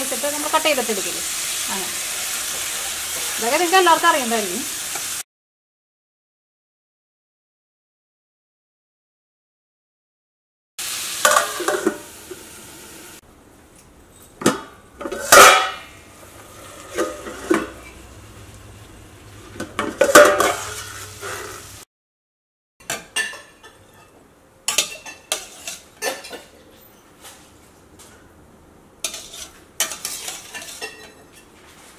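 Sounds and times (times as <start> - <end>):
metal plate clanking on pan: 11.2 - 12.0, 14.4 - 16.0, 19.6 - 21.1, 22.8 - 26.6, 29.0 - 31.5
spoon scraping and clinking: 24.7 - 27.1, 29.1 - 31.5.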